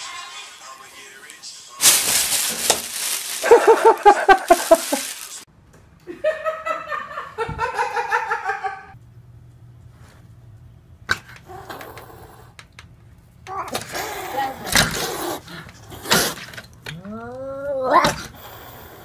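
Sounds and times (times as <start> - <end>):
person laughing: 3.3 - 5.3, 6.0 - 9.0.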